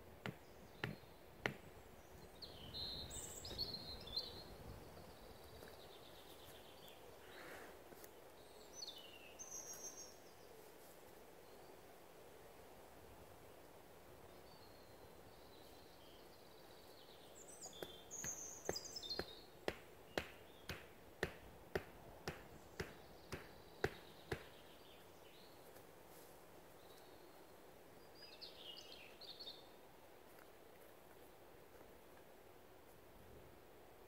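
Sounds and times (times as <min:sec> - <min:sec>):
tent peg being hammered: 0:00.2 - 0:01.7, 0:18.2 - 0:24.6
small birds chirping: 0:00.2 - 0:10.6, 0:14.3 - 0:26.0, 0:26.6 - 0:31.4.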